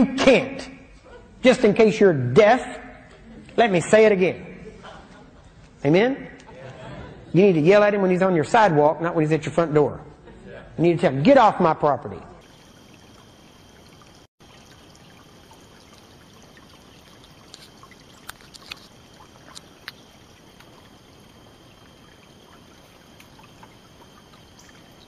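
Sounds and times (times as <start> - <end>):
faint outdoor hiss: 10.2 - 25.0.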